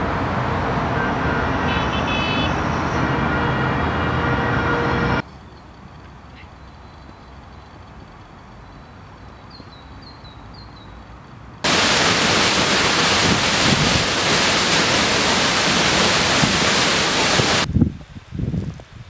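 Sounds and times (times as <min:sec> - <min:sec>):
waterfall rushing onto rocks: 0:11.6 - 0:17.7
wind buffeting microphone: 0:11.7 - 0:14.6, 0:16.0 - 0:19.0.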